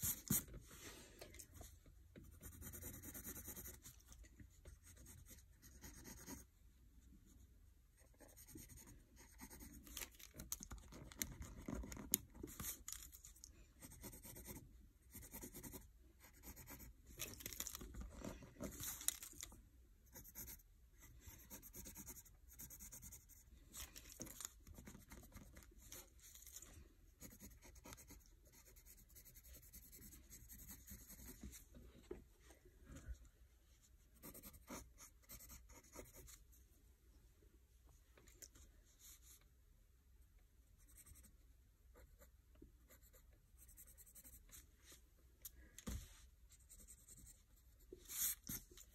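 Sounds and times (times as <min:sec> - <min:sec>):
pencil scratching on paper: 0:00.0 - 0:00.6, 0:02.2 - 0:06.5, 0:08.0 - 0:10.0, 0:13.8 - 0:17.1, 0:20.1 - 0:23.5, 0:24.2 - 0:26.6, 0:27.2 - 0:31.6, 0:34.2 - 0:36.4, 0:42.0 - 0:44.6, 0:46.5 - 0:48.9.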